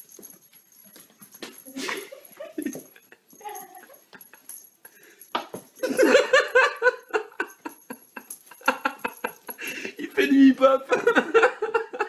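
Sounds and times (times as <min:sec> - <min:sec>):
person laughing: 0:01.7 - 0:04.6.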